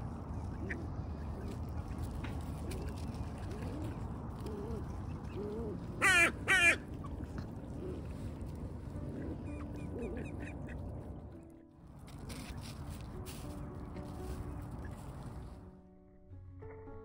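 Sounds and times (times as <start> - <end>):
ducks quacking softly: 2.5 - 8.2, 9.0 - 11.3
loud duck calls close by: 6.0 - 6.8.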